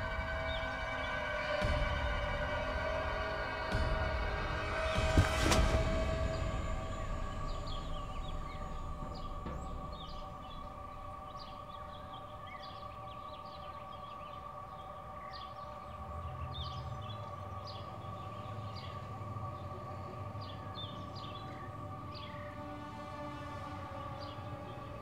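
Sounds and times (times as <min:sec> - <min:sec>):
low rumble: 0:00.0 - 0:14.3
eerie held drone: 0:00.0 - 0:25.0
bird chirps: 0:06.2 - 0:19.0.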